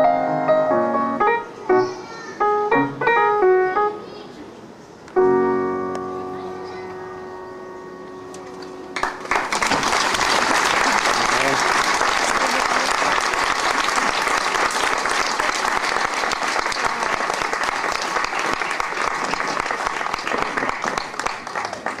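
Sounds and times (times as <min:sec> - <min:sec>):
audience applauding: 0:09.0 - 0:22.0.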